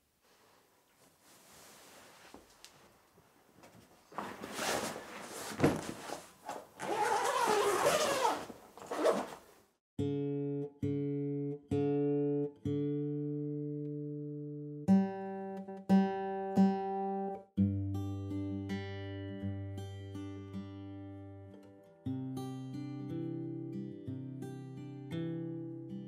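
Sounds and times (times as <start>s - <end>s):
rustling of guitar gig bag: 3.7s - 9.6s
acoustic guitar string plucked: 10.0s - 16.8s.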